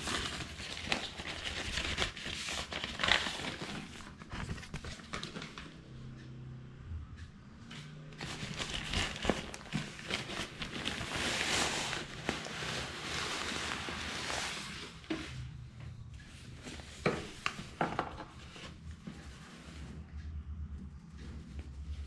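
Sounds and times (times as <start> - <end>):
plastic packaging crinkling: 0.0 - 5.5, 8.2 - 14.9.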